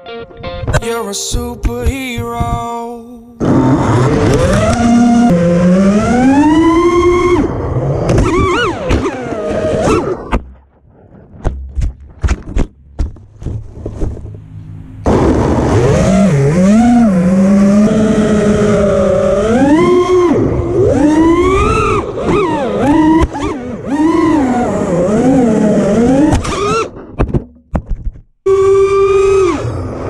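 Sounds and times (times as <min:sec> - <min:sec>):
drone motors whining: 0:03.3 - 0:11.4, 0:13.0 - 0:27.1, 0:28.5 - 0:30.0.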